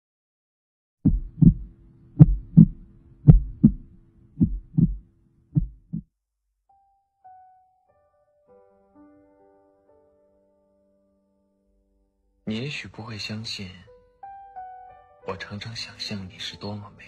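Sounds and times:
heartbeat double thumps: 0:01.1 - 0:05.0, 0:05.6 - 0:06.1.

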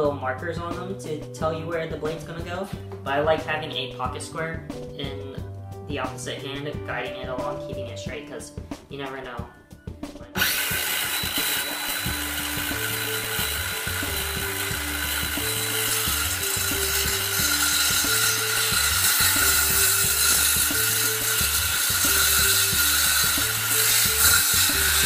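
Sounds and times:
circular saw cutting wood: 0:10.4 - 0:25.0.

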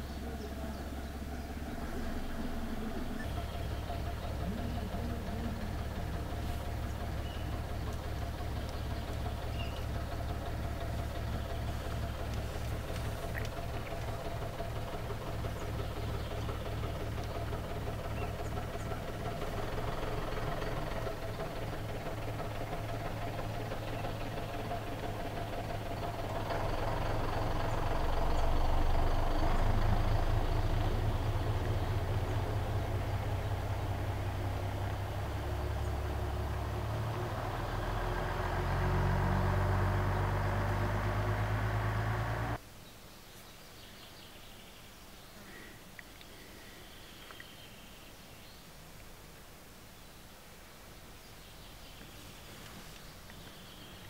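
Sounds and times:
low pulsing drone: 0:00.0 - 0:42.6.

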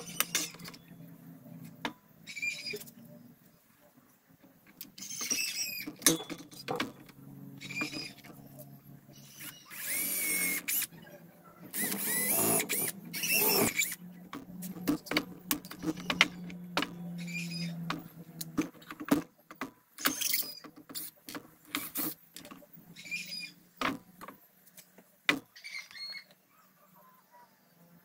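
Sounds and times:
sharp clicks and knocks: 0:04.4 - 0:08.7, 0:11.6 - 0:22.7
drill boring into wood: 0:09.3 - 0:10.9, 0:11.7 - 0:14.0.

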